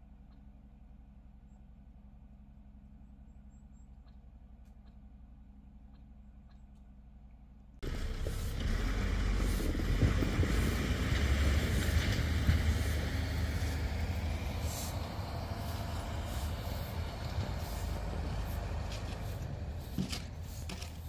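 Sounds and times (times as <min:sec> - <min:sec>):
snow-removal vehicle engine rumble: 0:07.8 - 0:21.0.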